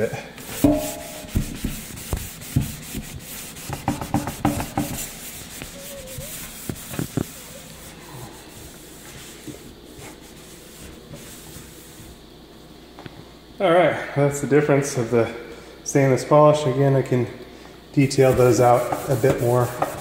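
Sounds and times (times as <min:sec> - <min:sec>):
cloth rubbing steel sink: 0:00.0 - 0:12.2, 0:18.1 - 0:20.0.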